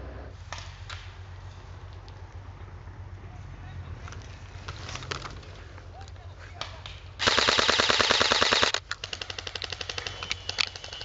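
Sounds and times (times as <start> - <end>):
airsoft gun full-auto burst: 7.2 - 11.0.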